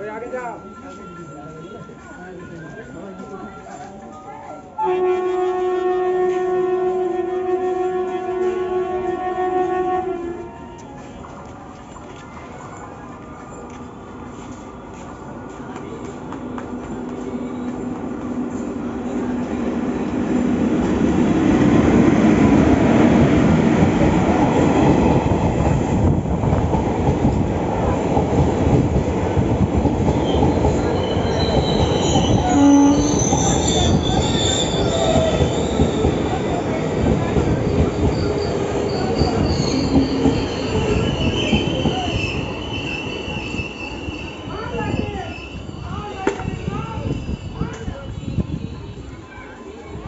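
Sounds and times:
train rumbling on rails: 4.6s - 50.0s
train wheels squealing: 30.1s - 49.9s.

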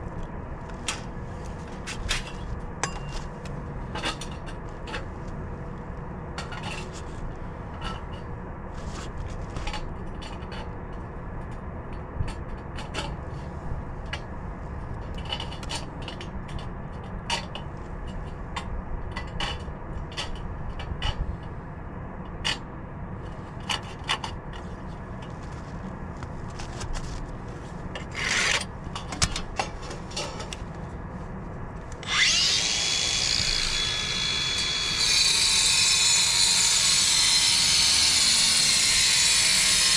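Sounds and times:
low steady rumble: 0.0s - 37.0s
angle grinder cutting masonry: 32.0s - 39.9s.

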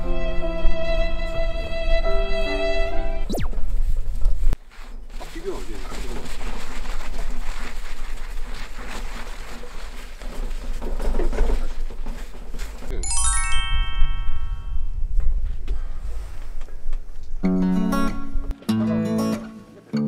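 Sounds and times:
swooping sound effect: 3.2s - 4.0s
cloth scrubbing on metal plate: 6.0s - 12.8s
descending ringing chime tones: 13.0s - 15.1s.

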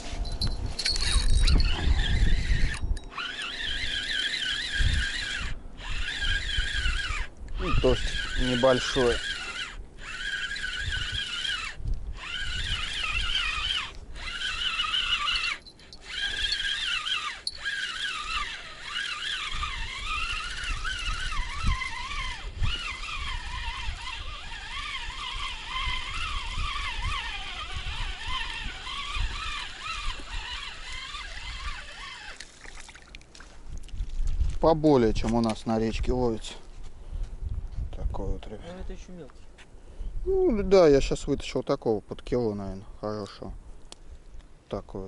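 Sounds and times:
wind rumble on microphone: 0.0s - 15.7s, 18.1s - 32.2s, 33.5s - 39.2s
fishing reel whining: 0.0s - 32.8s.

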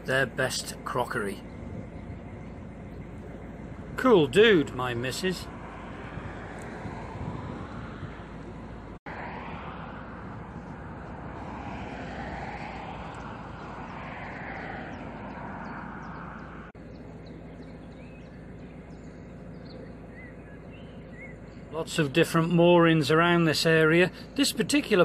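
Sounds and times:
boat engine droning: 0.0s - 25.0s
bird chirps: 14.3s - 21.8s.

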